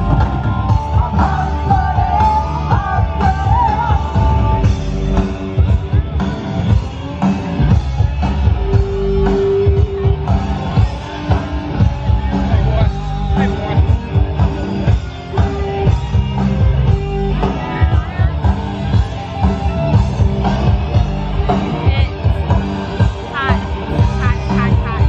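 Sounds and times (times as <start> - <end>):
rock music: 0.0 - 25.0
steady drum beat: 0.0 - 25.0.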